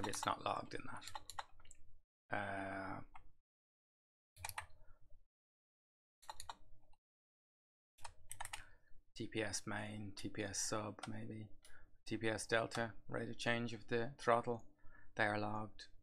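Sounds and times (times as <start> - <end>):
man humming hmm: 2.3 - 3.0
typing on laptop keyboard: 6.2 - 6.6, 8.0 - 8.6.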